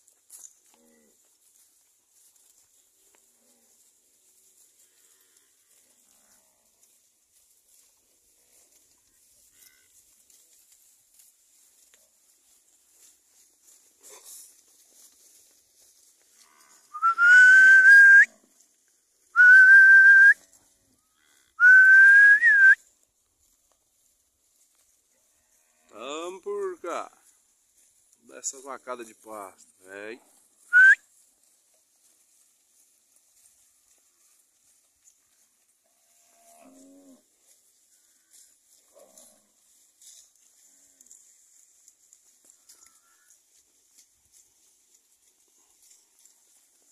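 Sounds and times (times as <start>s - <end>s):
person whistling loudly: 16.9s - 18.3s, 19.4s - 20.4s, 21.6s - 22.8s, 30.7s - 31.0s
cattle mooing faintly: 35.8s - 39.7s, 42.4s - 43.4s.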